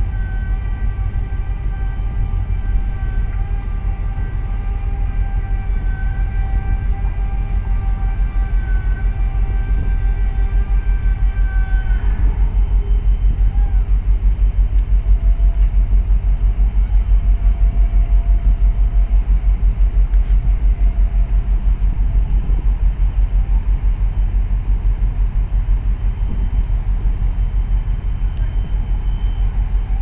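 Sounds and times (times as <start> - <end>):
boat engine running: 0.0 - 30.0
water and wind noise: 0.0 - 30.0.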